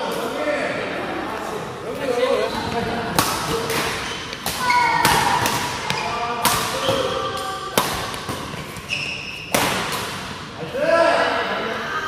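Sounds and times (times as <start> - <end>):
shoes squeaking on court: 2.4 - 9.6
rackets hitting shuttlecock: 3.1 - 10.5.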